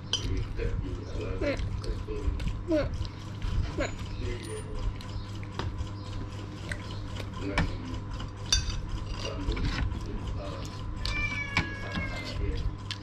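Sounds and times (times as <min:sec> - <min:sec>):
metal spoons clinking on plates: 0:08.5 - 0:09.5.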